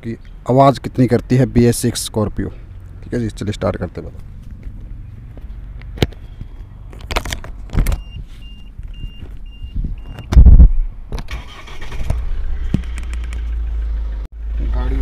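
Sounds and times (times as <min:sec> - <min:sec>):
short warning beeps: 0:08.0 - 0:10.3
diesel engine starting and idling: 0:11.2 - 0:15.0.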